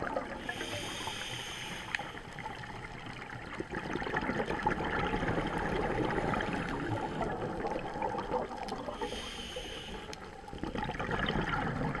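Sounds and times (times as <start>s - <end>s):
bubbles gurgling: 0.0s - 0.7s, 2.4s - 9.2s, 10.4s - 12.0s
muffled underwater wash: 0.0s - 12.0s.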